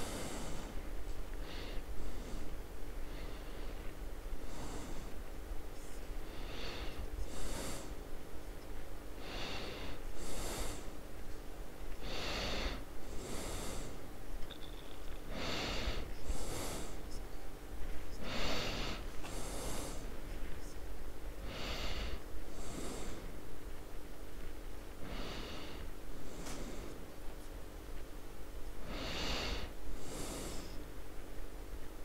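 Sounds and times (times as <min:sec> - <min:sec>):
person breathing heavily: 0:00.0 - 0:08.1, 0:09.2 - 0:11.0, 0:12.0 - 0:17.2, 0:18.1 - 0:20.7, 0:21.4 - 0:23.4, 0:25.0 - 0:27.1, 0:28.8 - 0:30.9
low steady hum: 0:00.0 - 0:32.0.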